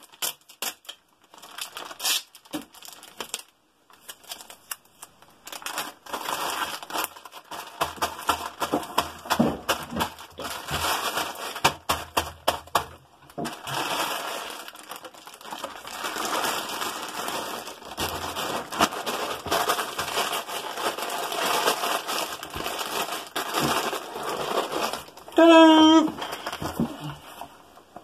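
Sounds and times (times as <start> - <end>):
small clicks and crackles: 0.0 - 9.1, 13.3 - 25.4
plastic bag crinkling: 0.0 - 28.0.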